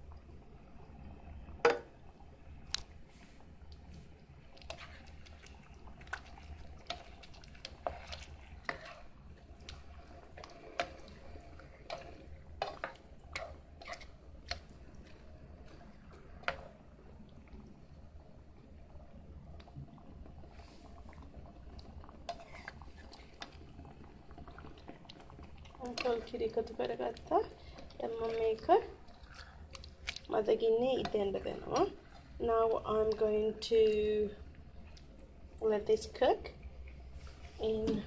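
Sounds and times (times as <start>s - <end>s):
sauce sloshing: 4.5s - 16.8s, 24.4s - 33.4s.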